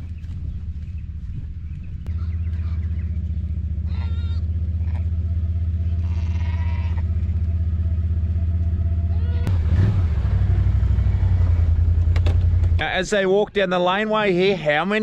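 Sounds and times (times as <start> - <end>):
quad bike engine running: 0.8 - 12.9
sheep bleating: 3.8 - 5.1, 5.9 - 7.2, 9.1 - 9.5.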